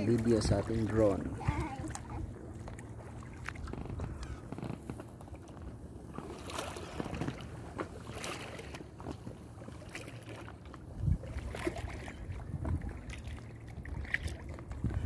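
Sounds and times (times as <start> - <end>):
paddles splashing in water: 0.0 - 15.0
wind rumble on microphone: 0.4 - 5.9, 10.8 - 15.0.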